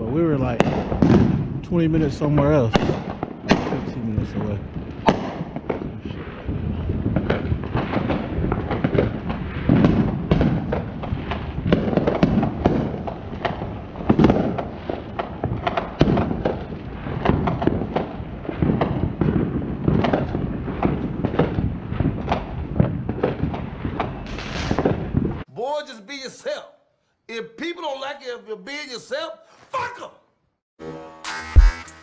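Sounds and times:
deep fireworks booms: 0:00.0 - 0:25.5
fireworks bangs and cracks: 0:00.0 - 0:25.5.

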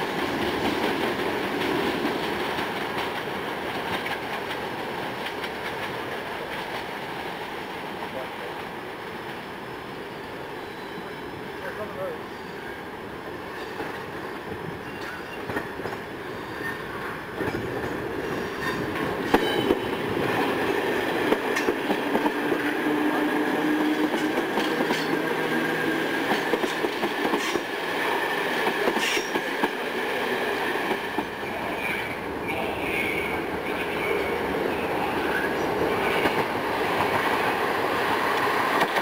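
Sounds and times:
train rumble: 0:00.0 - 0:09.5, 0:13.5 - 0:39.0
train wheels clicking over rail joints: 0:00.1 - 0:07.3, 0:13.6 - 0:31.4, 0:36.0 - 0:39.0
high wheel squeal: 0:10.6 - 0:11.5.

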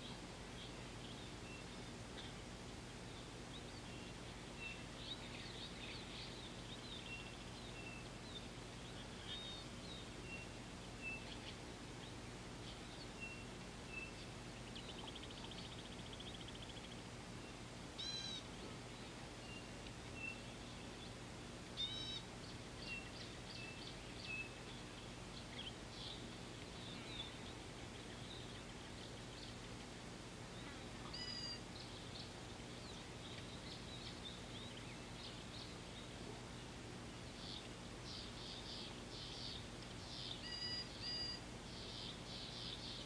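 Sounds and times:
faint low hum: 0:00.0 - 0:43.0
loud ringing bird calls: 0:12.6 - 0:18.5, 0:21.8 - 0:24.9, 0:30.6 - 0:32.4, 0:37.4 - 0:43.0
birds chirping and whistling: 0:18.0 - 0:18.4, 0:21.8 - 0:29.6, 0:30.6 - 0:36.1, 0:37.4 - 0:43.0.

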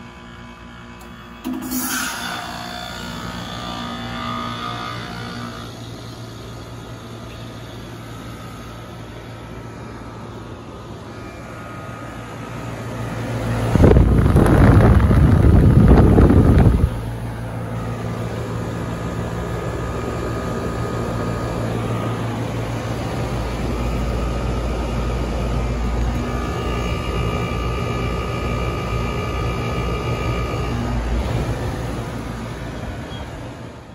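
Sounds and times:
heat pump humming: 0:00.0 - 0:33.9.

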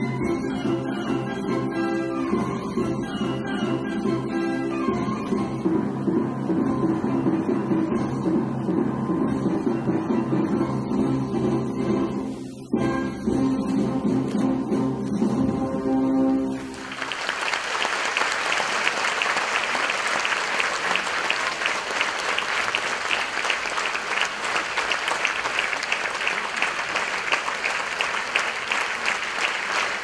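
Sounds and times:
audience applause: 0:16.6 - 0:30.0.

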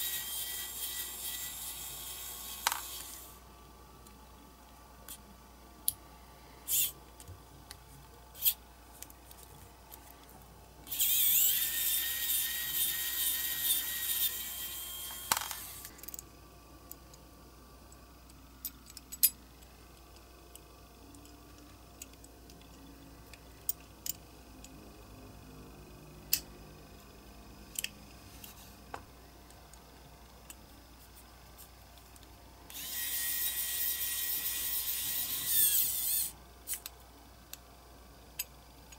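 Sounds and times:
small parts clicking and tapping: 0:15.0 - 0:17.2, 0:17.9 - 0:24.8, 0:27.7 - 0:28.6
electric screwdriver whine: 0:32.7 - 0:36.3.

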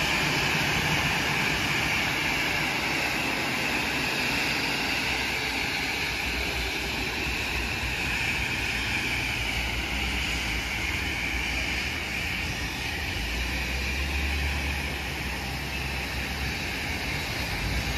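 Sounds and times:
jet engines idling: 0:00.0 - 0:17.9.

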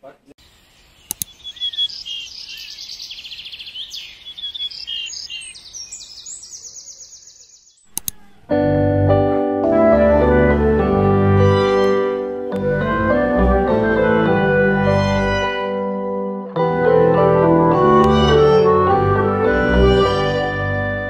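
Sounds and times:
small birds chirping: 0:00.4 - 0:08.5
clicks: 0:01.1 - 0:01.4, 0:07.9 - 0:08.6
keyboard background music: 0:07.9 - 0:21.0.

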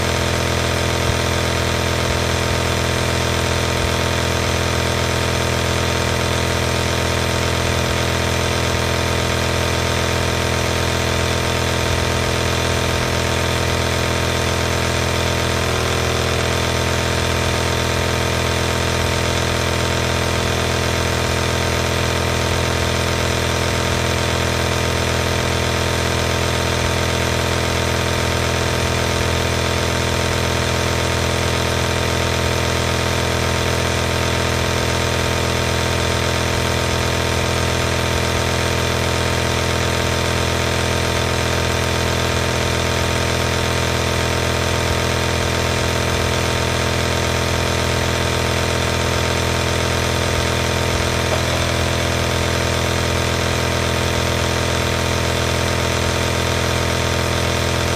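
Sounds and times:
nebulizer motor buzzing: 0:47.4 - 0:55.6.

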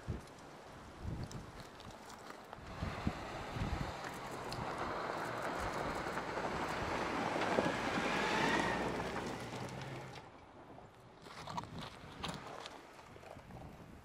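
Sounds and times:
tyres on loose dirt and gravel: 0:00.0 - 0:14.0
low engine hum: 0:02.6 - 0:10.5.

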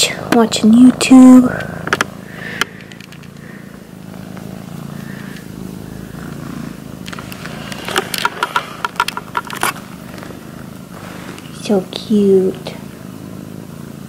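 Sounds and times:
kitten purring: 0:00.0 - 0:14.0.

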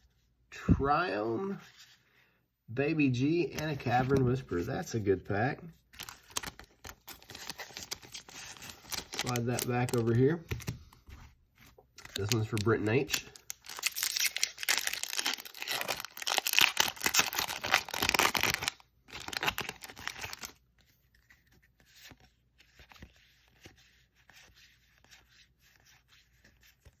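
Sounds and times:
cards rustling: 0:03.2 - 0:27.0
foil wrapper tearing and crinkling: 0:06.0 - 0:10.2, 0:12.0 - 0:20.6.

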